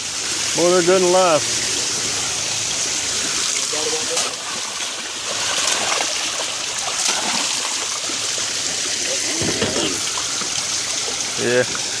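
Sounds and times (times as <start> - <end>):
water rushing and splashing: 0.0 - 12.0
fish splashing at surface: 3.1 - 12.0.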